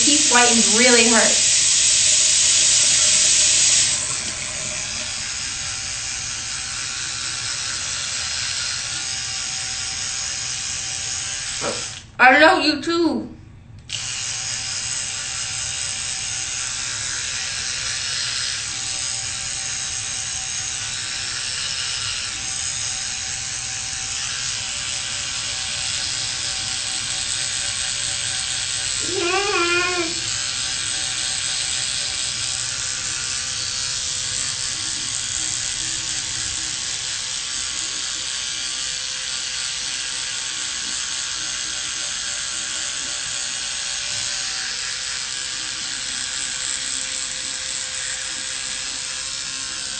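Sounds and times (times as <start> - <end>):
electric toothbrush buzzing: 0.0 - 13.0, 13.9 - 49.9
short wavering vocal sound: 29.0 - 30.3.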